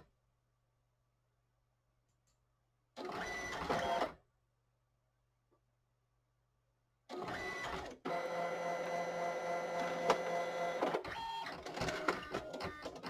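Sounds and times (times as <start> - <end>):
printer motor whine: 7.3 - 13.0
printer clicks and clunks: 9.6 - 13.0.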